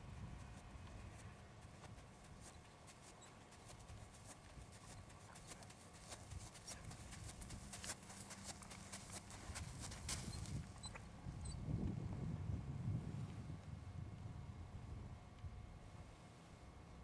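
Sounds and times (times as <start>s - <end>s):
horse hooves walking on sand: 0.0s - 11.2s.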